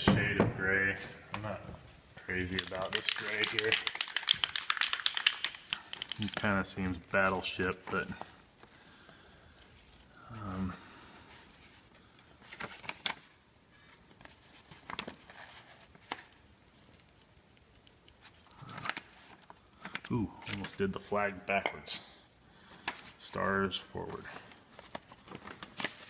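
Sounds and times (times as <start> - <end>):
cricket trilling: 5.2 - 25.9.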